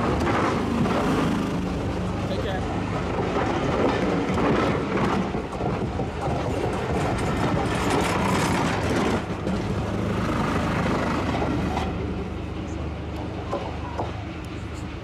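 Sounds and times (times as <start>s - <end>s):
rattling and clatter: 0.0s - 12.0s
steam train rumbling on track: 0.0s - 15.0s.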